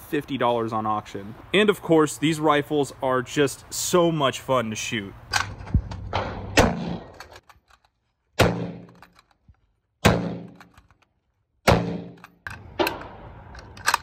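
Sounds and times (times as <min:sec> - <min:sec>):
rifle shots: 0:05.4 - 0:07.3, 0:08.4 - 0:09.0, 0:10.0 - 0:10.8, 0:11.7 - 0:13.2
rifle action clacking: 0:06.6 - 0:14.0
rifle bolt clicking: 0:08.8 - 0:09.6, 0:10.4 - 0:11.2, 0:12.1 - 0:14.0.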